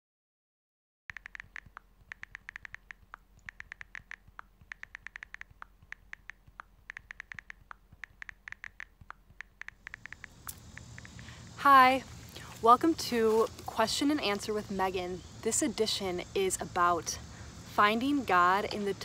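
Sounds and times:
keyboard key clicks: 1.1s - 11.2s.

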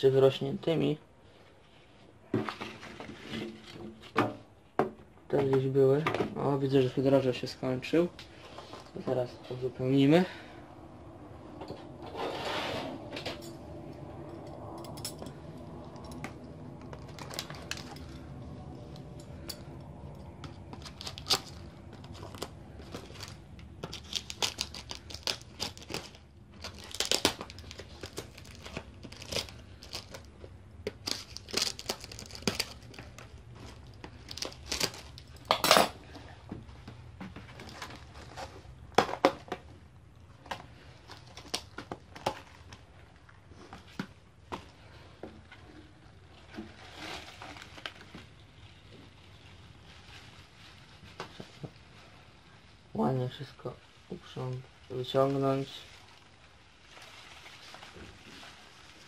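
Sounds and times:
cardboard and plastic crinkling: 16.0s - 52.8s, 54.0s - 59.0s.

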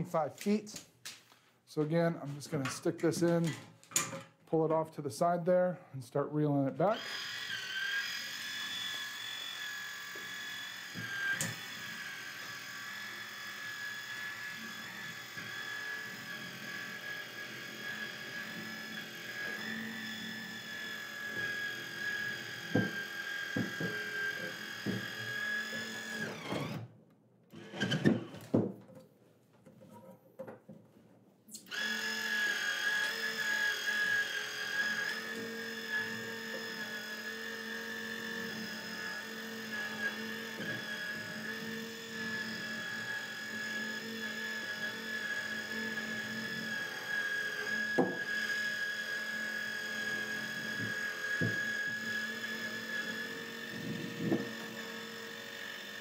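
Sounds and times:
electric motor whine: 6.9s - 26.9s, 31.6s - 56.0s.

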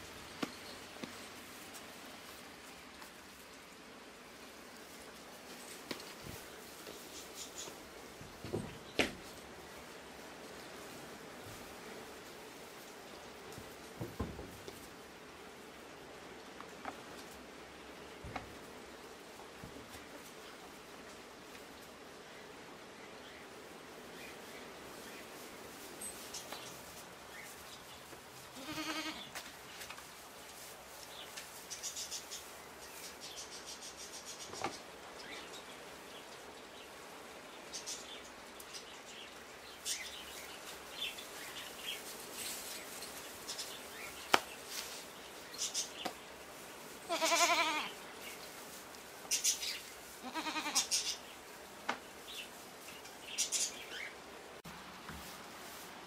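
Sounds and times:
small rustles and ticks: 0.0s - 56.0s
goats bleating: 28.6s - 29.3s, 47.1s - 48.0s, 50.2s - 51.0s.

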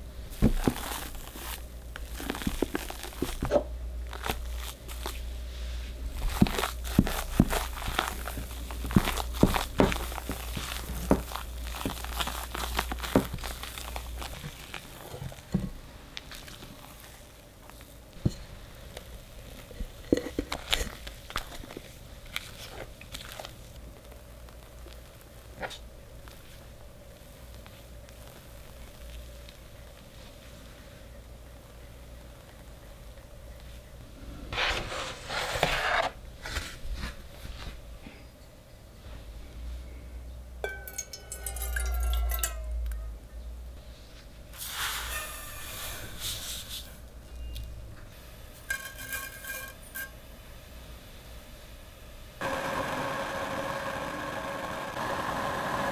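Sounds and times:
batter squishing: 0.0s - 31.0s
spatula scraping batter: 34.5s - 36.8s
spatula tapping bowl: 40.6s - 43.0s
sugar pouring into pan: 40.7s - 42.7s
water pouring into saucepan: 40.7s - 42.7s.

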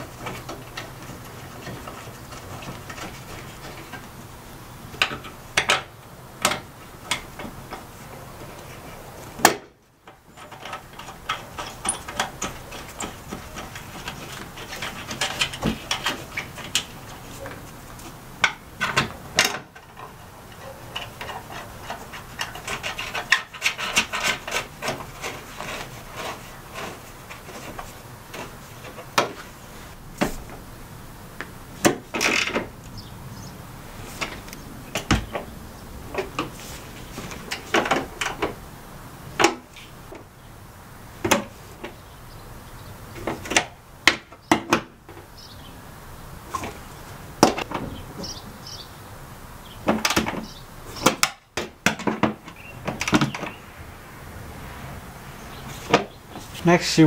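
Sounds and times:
plastic parts rubbing and scraping: 0.0s - 4.2s, 10.1s - 18.2s, 18.8s - 30.6s, 33.8s - 38.6s, 46.4s - 48.4s, 55.4s - 56.7s
sharp clicks and knocks: 4.9s - 7.9s, 9.4s - 29.5s, 37.2s - 38.6s, 39.4s - 40.3s, 41.2s - 42.0s, 47.4s - 48.4s, 49.8s - 53.6s.

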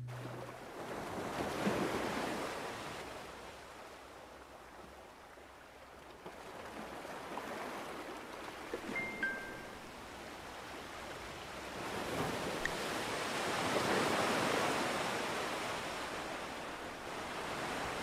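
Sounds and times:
ocean surf washing onto beach: 8.9s - 18.0s
brief high tones: 9.0s - 9.8s.

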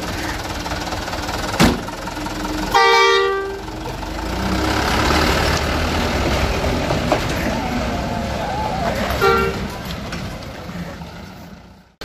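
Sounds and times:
truck engine running: 0.0s - 12.0s
truck horn blast: 2.7s - 3.7s, 9.1s - 9.8s.

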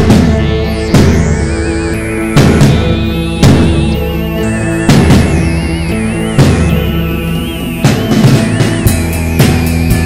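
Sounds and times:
heavy drum hits: 0.0s - 1.6s, 2.3s - 5.7s
sustained synth chords: 0.0s - 10.0s
wavering high lead note: 0.0s - 10.0s.

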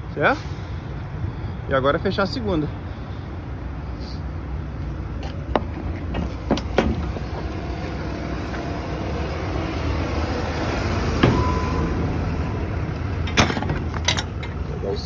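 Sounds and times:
truck engines idling: 0.0s - 15.0s
metal clank: 13.2s - 14.6s.

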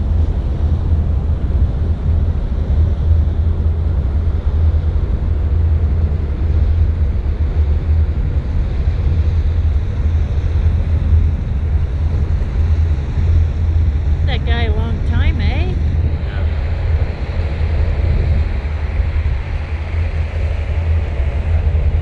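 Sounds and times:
water rushing along hull: 0.0s - 22.0s
wind buffeting microphone: 0.0s - 22.0s.

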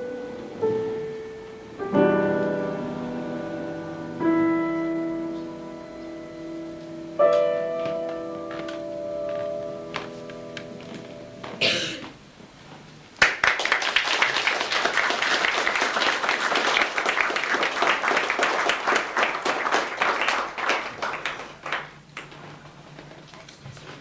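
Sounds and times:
piano chord ringing: 0.0s - 12.0s
audience applause: 13.2s - 22.4s.

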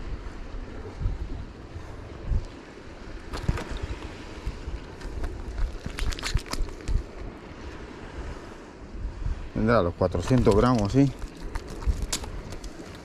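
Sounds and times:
wind on microphone: 0.0s - 13.0s
clicks and rustles of fish handling: 4.9s - 7.2s, 10.2s - 13.0s.

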